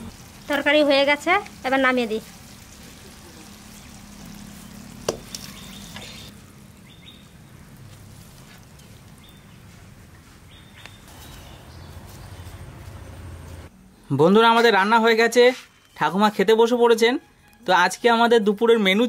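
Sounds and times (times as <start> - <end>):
bird chirps: 4.6 - 7.4, 10.4 - 12.7.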